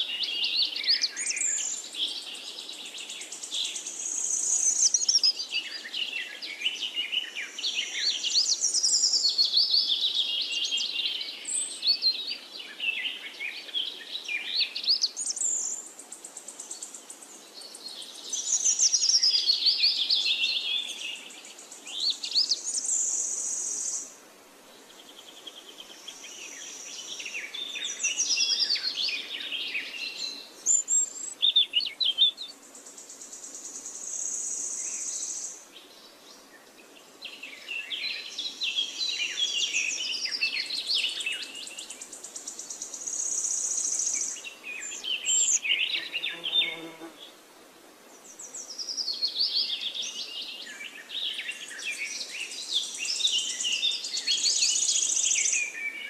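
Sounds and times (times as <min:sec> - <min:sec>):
birds chirping and trilling: 0:24.9 - 0:47.4.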